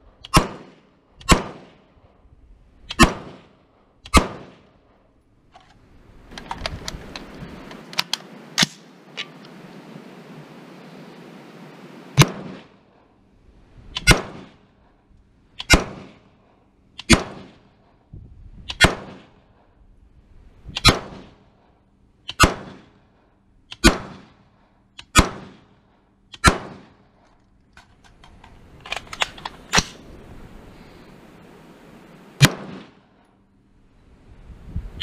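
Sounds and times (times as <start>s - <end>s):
rifle shots with echo: 0.3s - 1.9s, 2.9s - 5.0s, 12.2s - 13.0s, 14.0s - 14.7s, 15.6s - 16.3s, 17.0s - 17.7s, 18.7s - 19.5s, 20.8s - 21.4s, 22.4s - 23.0s, 23.8s - 24.4s, 25.1s - 25.8s, 26.4s - 27.1s, 32.4s - 33.1s
faint gunshot cracks: 12.2s - 12.7s, 32.4s - 33.0s.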